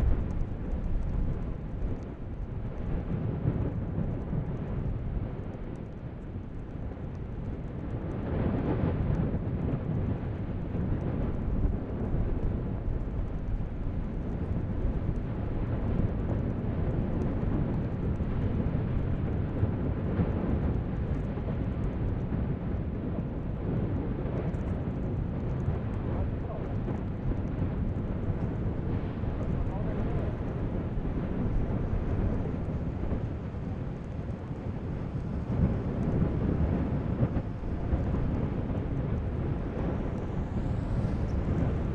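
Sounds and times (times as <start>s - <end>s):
volcanic vent rumbling: 0.0s - 41.9s.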